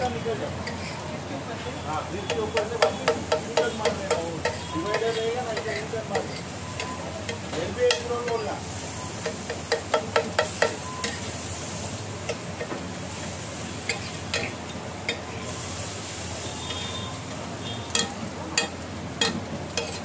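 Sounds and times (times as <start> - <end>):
sizzling on hot griddle: 0.0 - 20.0
metal spatula tapping on griddle: 2.2 - 8.5, 9.2 - 11.2, 13.9 - 15.3, 17.9 - 20.0.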